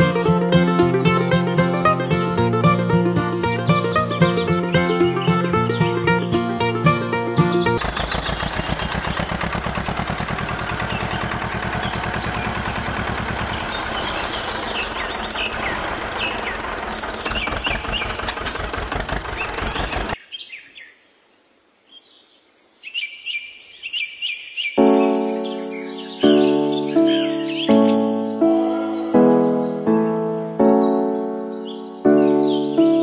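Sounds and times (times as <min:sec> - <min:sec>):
small engine running: 0:00.0 - 0:20.2
birds chirping: 0:00.0 - 0:21.0, 0:21.9 - 0:33.0.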